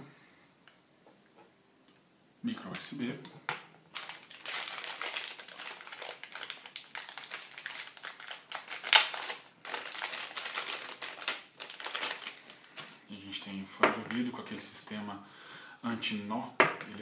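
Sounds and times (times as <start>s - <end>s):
plastic bag crinkling: 3.9s - 13.2s.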